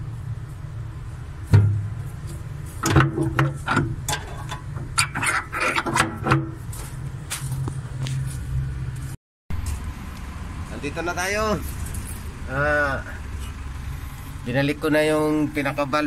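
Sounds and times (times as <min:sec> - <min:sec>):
steady low hum: 0:00.0 - 0:16.0
thump: 0:01.5 - 0:01.9.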